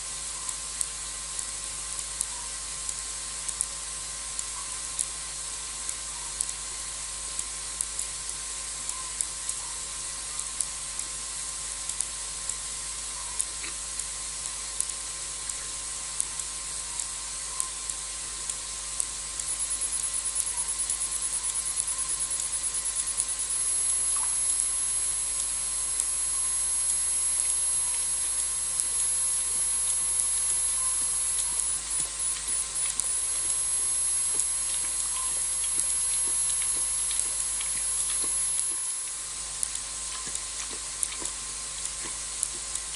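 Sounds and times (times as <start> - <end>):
steady hiss: 0.0 - 42.9
faint clicks: 16.3 - 42.9
high insect trill: 19.4 - 39.2.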